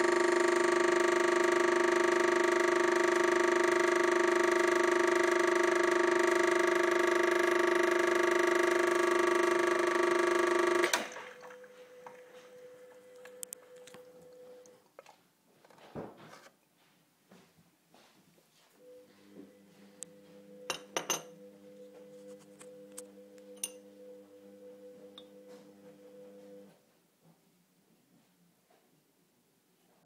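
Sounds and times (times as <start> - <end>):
espresso machine pump buzzing: 0.0 - 14.6.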